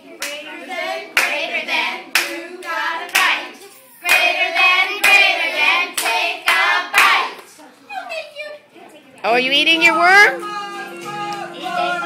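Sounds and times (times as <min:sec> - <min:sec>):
group singing a rhythmic chant: 0:00.0 - 0:07.5, 0:10.4 - 0:12.0
hand clap: 0:06.0 - 0:07.5.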